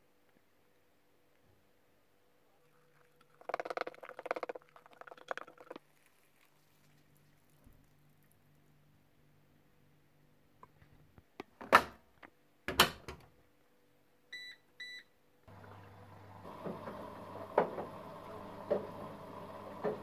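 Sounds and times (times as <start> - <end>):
washing machine hum and hiss: 15.5 - 20.0
drum knocking as it turns: 18.6 - 19.1.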